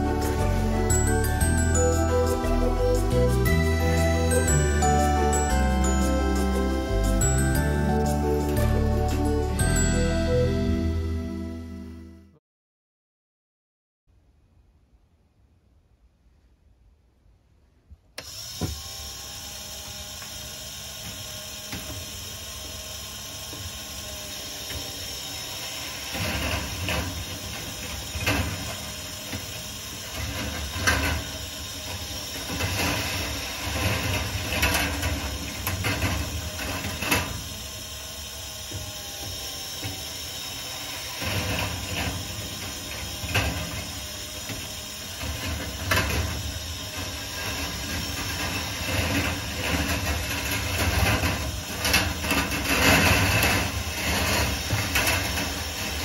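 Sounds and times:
steel balls rattling on wire tracks: 0.0 - 10.0, 21.2 - 56.0
mechanical running sound: 18.2 - 56.0.

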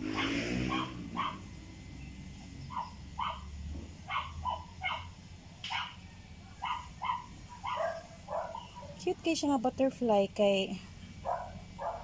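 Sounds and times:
dog barking: 0.0 - 1.5, 2.7 - 6.0, 6.6 - 9.0, 11.2 - 12.0.

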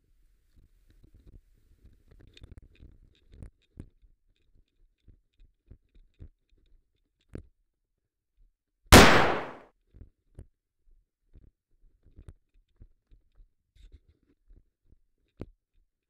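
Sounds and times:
loud gunshot bang: 9.0 - 9.6.

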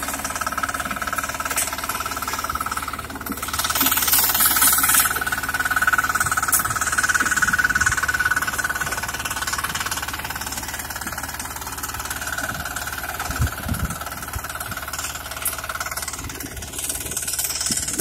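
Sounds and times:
power weeder engine running: 0.0 - 18.0.

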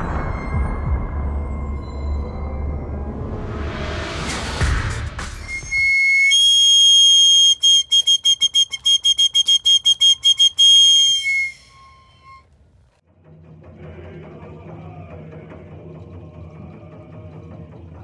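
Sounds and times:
shrill hand whistle blasts: 5.4 - 12.5.

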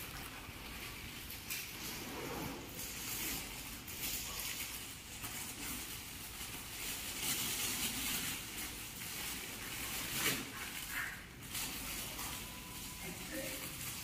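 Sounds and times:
plastic bag rustling and crinkling: 0.0 - 14.0.

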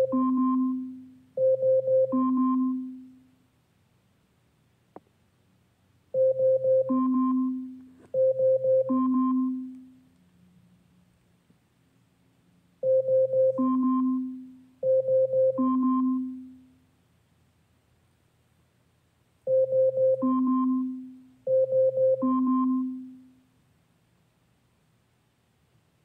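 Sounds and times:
smart speaker alarm chime: 0.0 - 3.2, 6.2 - 9.8, 12.8 - 16.6, 19.5 - 23.2.

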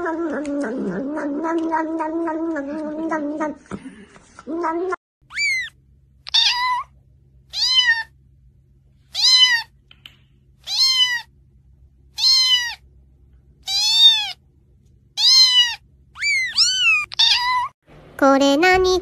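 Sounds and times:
cat meowing: 4.5 - 6.9, 7.5 - 8.1, 9.1 - 9.7, 10.6 - 11.3, 12.2 - 12.8, 13.6 - 14.4, 15.2 - 17.8.

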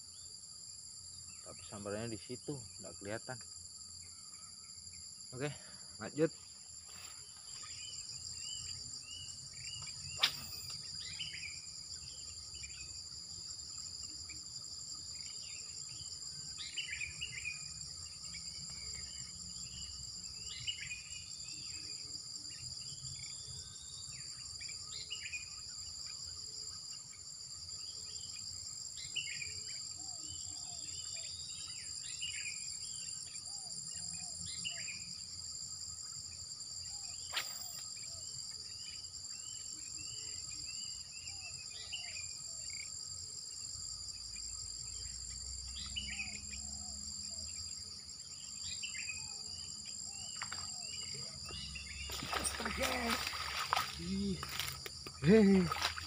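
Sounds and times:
high-pitched insect chorus: 0.0 - 56.0
sharp click: 10.2 - 10.8.

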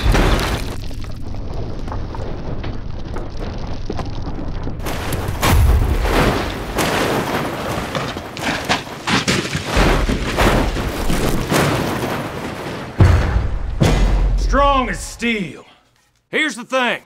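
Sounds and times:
car crashing against rocks: 0.0 - 0.8, 4.8 - 14.3
deep booms: 0.0 - 7.6, 12.8 - 15.4.

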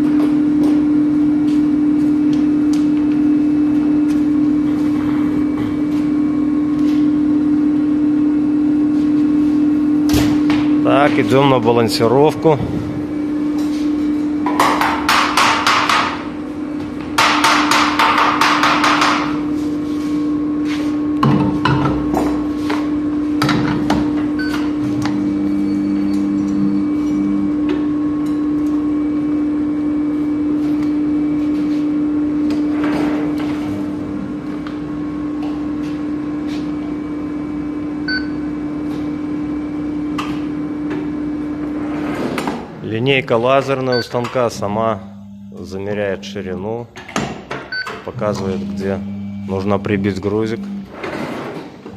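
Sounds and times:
steady machine hum: 0.0 - 51.9
short electronic beep: 47.7 - 51.0.

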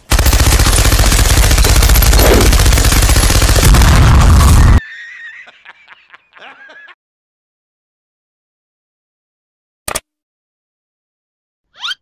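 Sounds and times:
machine gun firing rapidly: 0.0 - 4.8
faint laugh: 4.8 - 7.0.

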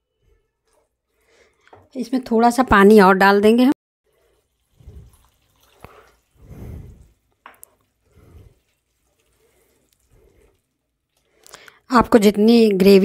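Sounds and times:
water splashing and dripping: 4.1 - 11.8.

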